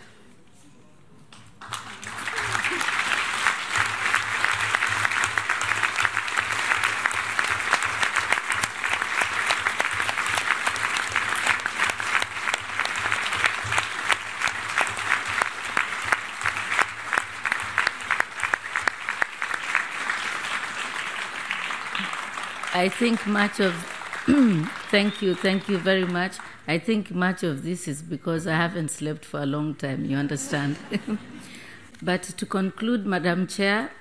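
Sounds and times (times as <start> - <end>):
crowd applauding: 1.6 - 26.7.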